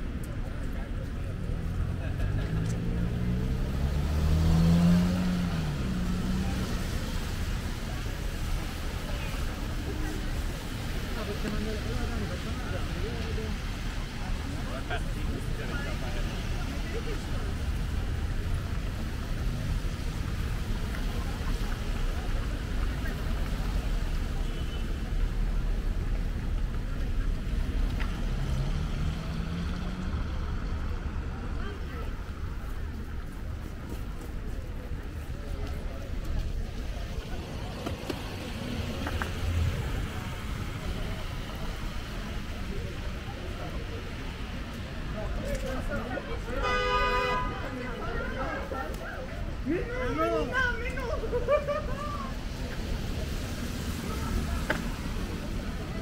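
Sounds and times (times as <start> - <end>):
traffic on wet pavement: 0.0 - 56.0
car engine accelerating: 1.5 - 7.0, 27.3 - 31.6.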